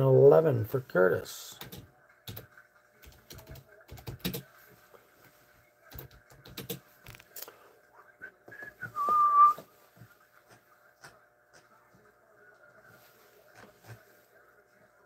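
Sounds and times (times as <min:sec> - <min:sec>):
computer keyboard typing: 0:01.6 - 0:04.5, 0:05.9 - 0:07.3.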